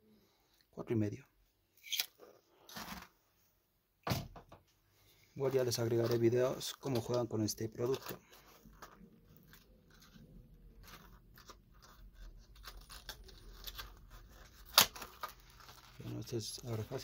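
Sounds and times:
plastic packaging crackling: 0:05.4 - 0:17.0
plastic pack snapping: 0:10.8 - 0:16.2.

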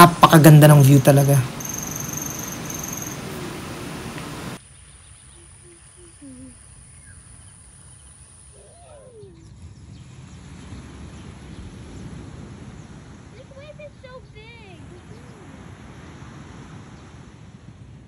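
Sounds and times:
steady hiss: 0:00.0 - 0:05.9
birds calling: 0:00.0 - 0:12.1.

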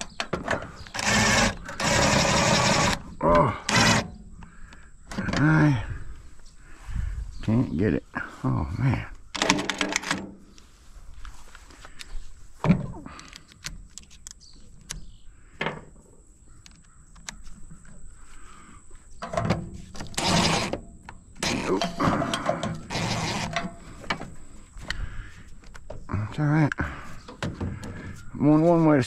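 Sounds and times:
metal knocks and clicks: 0:00.0 - 0:02.0, 0:09.3 - 0:10.4, 0:19.2 - 0:25.0, 0:27.3 - 0:28.2
metal scraping and rattling: 0:19.2 - 0:24.6.

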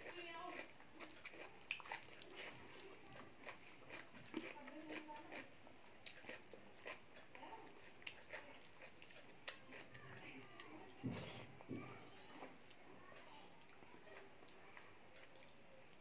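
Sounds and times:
wet chewing and lip-smacking: 0:00.0 - 0:11.4, 0:12.1 - 0:16.0.

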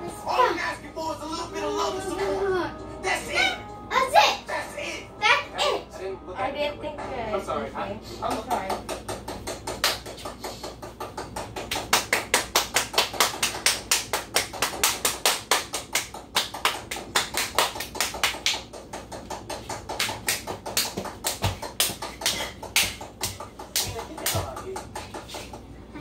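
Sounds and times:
rapid sharp tapping: 0:08.3 - 0:25.7.

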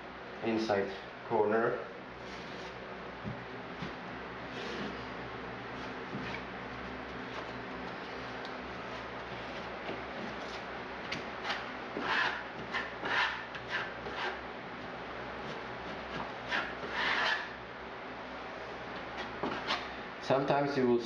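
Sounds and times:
hand tool scraping and rubbing: 0:02.2 - 0:02.8, 0:03.8 - 0:05.1, 0:11.4 - 0:14.4, 0:15.4 - 0:17.6, 0:19.2 - 0:19.9.

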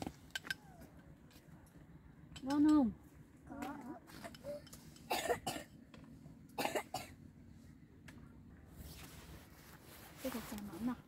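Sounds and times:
person coughing: 0:04.4 - 0:05.7, 0:06.6 - 0:07.1.

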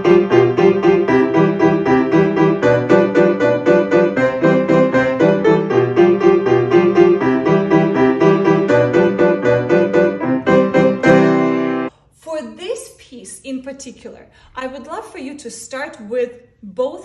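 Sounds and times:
upright piano lively tune: 0:00.0 - 0:11.9.

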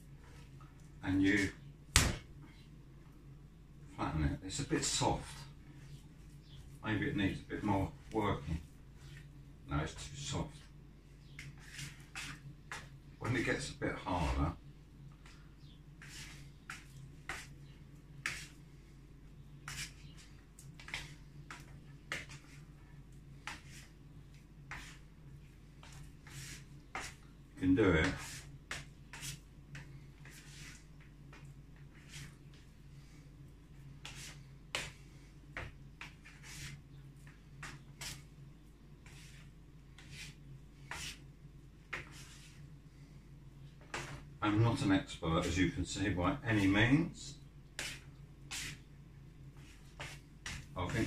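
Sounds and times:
steady low hum: 0:00.0 - 0:51.0
dough slapping on wooden worktop: 0:01.9 - 0:02.3.

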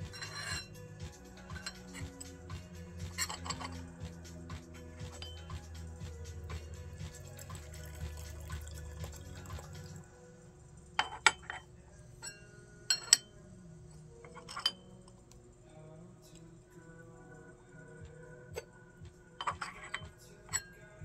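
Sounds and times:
cups clinking: 0:00.0 - 0:00.8, 0:01.5 - 0:02.4, 0:03.0 - 0:05.7, 0:06.4 - 0:10.0, 0:11.0 - 0:13.4, 0:14.2 - 0:15.2, 0:19.4 - 0:21.0
liquid pouring into cup: 0:07.1 - 0:10.0.

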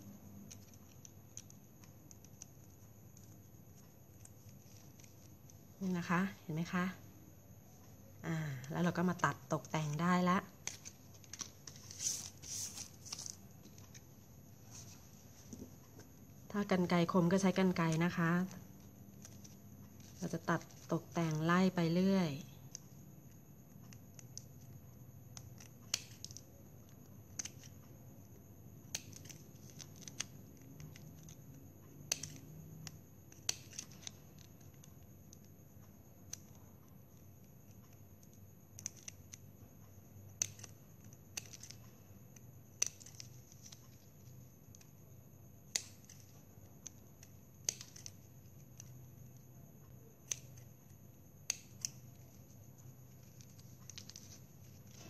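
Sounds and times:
snips cutting plastic straws: 0:25.3 - 0:27.8, 0:28.8 - 0:35.5, 0:40.2 - 0:44.0, 0:45.6 - 0:49.4, 0:50.2 - 0:50.7, 0:51.4 - 0:52.3.

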